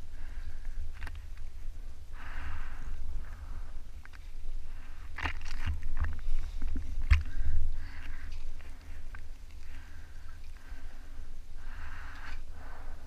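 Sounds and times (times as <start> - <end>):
water sloshing against hull: 4.0 - 10.6.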